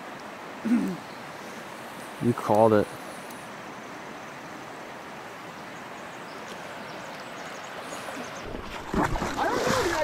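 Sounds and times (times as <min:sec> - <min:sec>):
river water flowing: 0:00.0 - 0:10.0
water splashing and knocking: 0:08.4 - 0:10.0.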